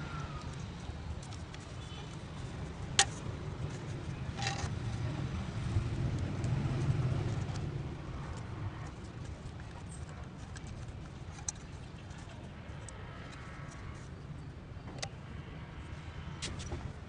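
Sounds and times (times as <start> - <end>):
road traffic rumble: 0.0 - 17.0
vehicle passing: 2.3 - 9.3.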